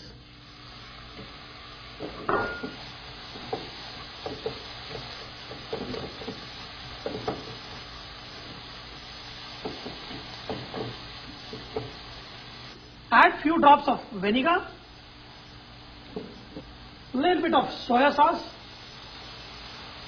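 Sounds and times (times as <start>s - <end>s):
food sizzling in a pan: 0.0s - 20.0s
spatula scraping and knocking pan: 2.0s - 7.8s, 9.6s - 12.0s.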